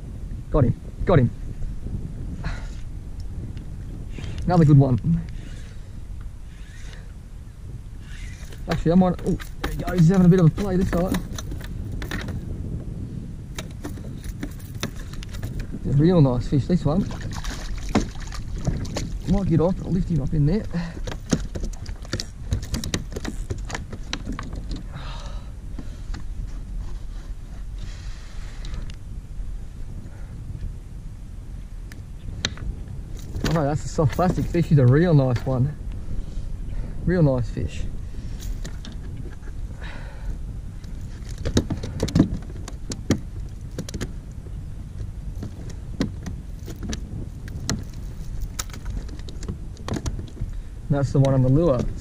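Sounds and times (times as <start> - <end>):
steady low rumble: 0.0 - 52.0
fish flapping on plastic kayak hull: 8.2 - 12.5, 17.0 - 24.9, 40.9 - 44.2, 45.4 - 50.6
fish knocking on plastic kayak: 17.1 - 19.2.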